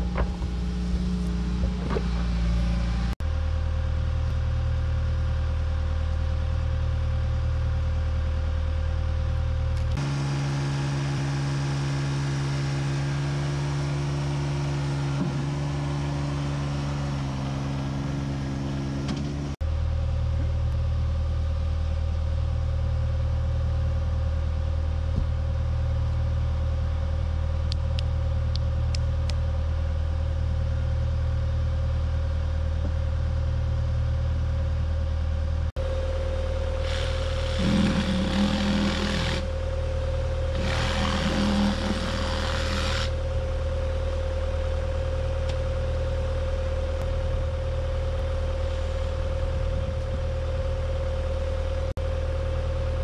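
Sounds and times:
excavator diesel engine running: 33.2s - 53.0s.

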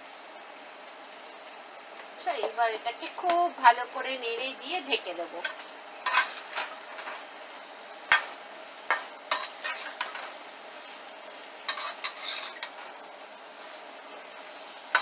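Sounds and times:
sizzle of frying: 0.0s - 15.0s
metal spatula scraping frying pan: 5.4s - 7.3s, 8.9s - 10.4s, 11.6s - 13.0s.

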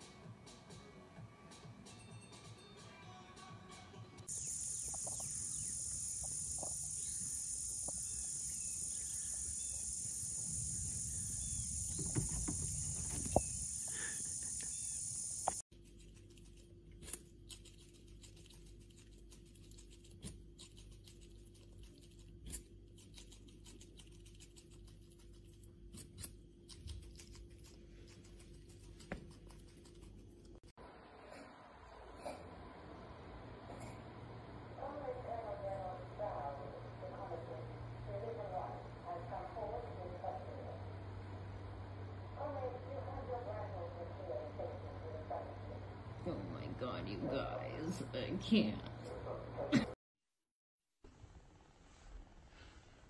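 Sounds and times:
small chirps: 4.2s - 30.6s
low hum: 4.2s - 50.0s
high-pitched hiss: 4.3s - 15.6s
squirrel gnawing: 4.3s - 30.7s.

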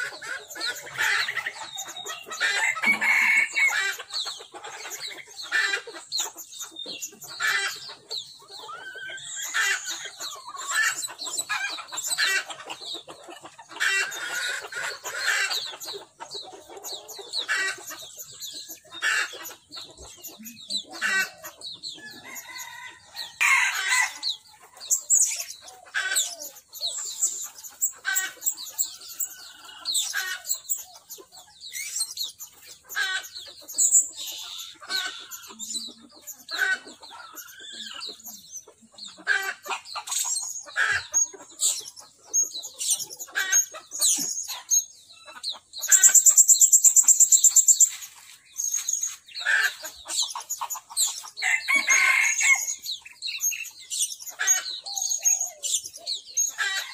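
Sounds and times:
parrots chirping shrilly: 0.0s - 38.3s, 39.1s - 56.9s
hens clucking: 0.0s - 56.9s
rooster crowing: 2.6s - 3.9s, 22.0s - 24.2s, 51.4s - 52.7s.

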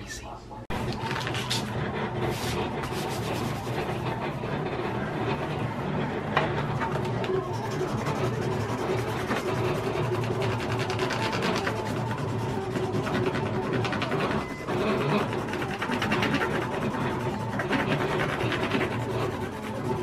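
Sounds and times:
burnishing tool scraping vinyl: 0.7s - 20.0s.

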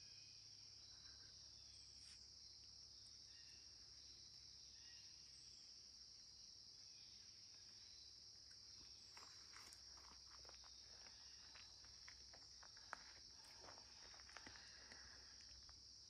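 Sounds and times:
high-pitched insect chorus: 0.0s - 16.0s
light footsteps: 9.1s - 15.8s.

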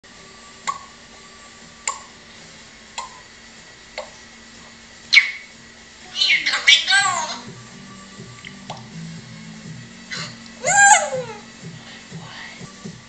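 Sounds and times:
parrot falling whistle: 5.1s - 5.5s.

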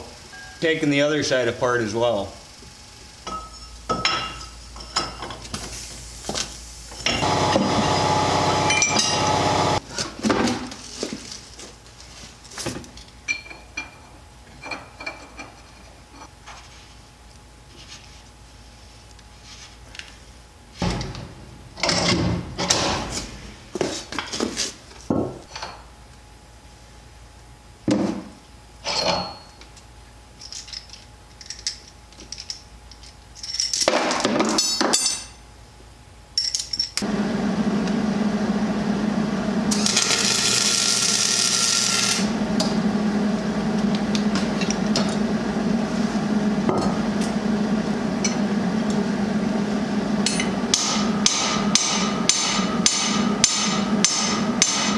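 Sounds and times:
steady low hum: 13.8s - 27.8s, 35.4s - 40.7s, 42.0s - 54.9s.

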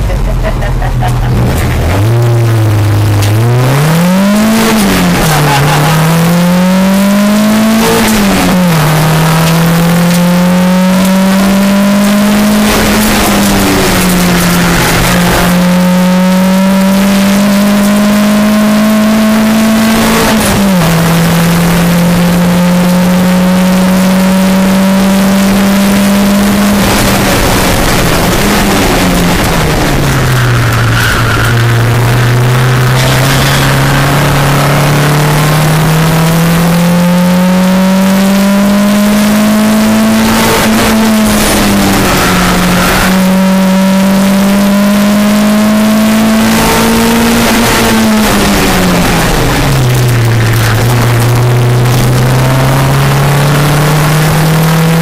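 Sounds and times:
car engine revving hard: 0.0s - 55.0s.

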